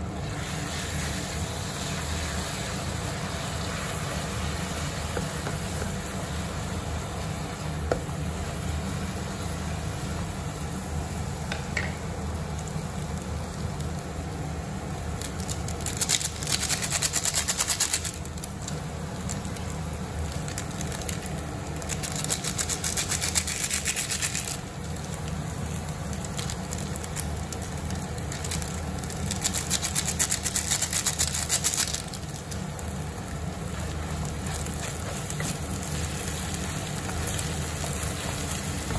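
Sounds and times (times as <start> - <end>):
food sizzling in a pan: 0.0 - 15.2, 31.4 - 38.9.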